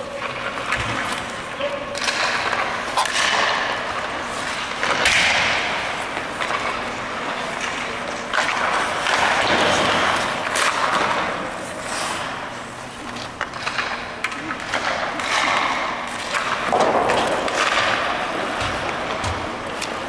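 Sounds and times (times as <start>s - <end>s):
skates scraping across ice: 0.0s - 14.1s.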